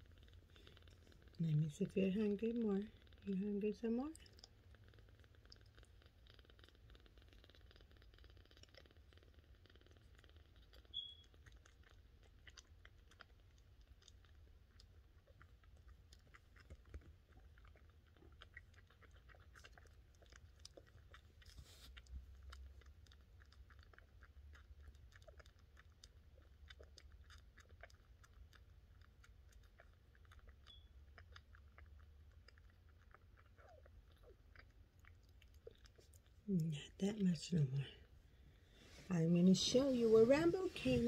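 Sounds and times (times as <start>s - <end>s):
low steady hum: 0.0s - 41.0s
soft rush of noise: 37.8s - 41.0s.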